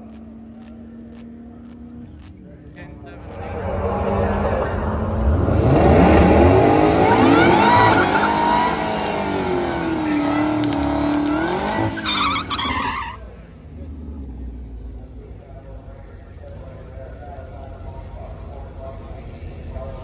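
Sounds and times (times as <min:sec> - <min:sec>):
car engine revving high: 0:03.1 - 0:13.2
tyres squealing on pavement: 0:06.7 - 0:13.5.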